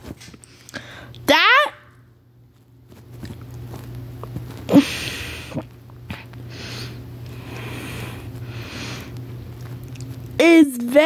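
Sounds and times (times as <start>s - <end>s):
steady low hum: 0.0s - 11.0s
person breathing and sniffing: 4.7s - 9.2s.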